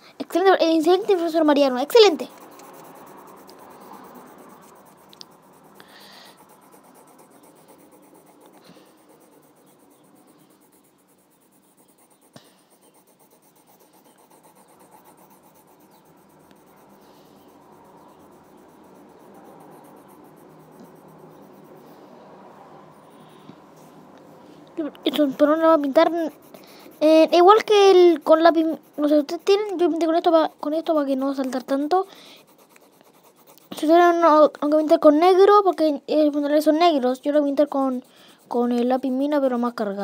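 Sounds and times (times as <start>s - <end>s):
pencil scratching on paper: 0.3s - 22.2s, 22.8s - 24.0s, 24.8s - 40.0s
sharp tick: 5.1s - 5.3s.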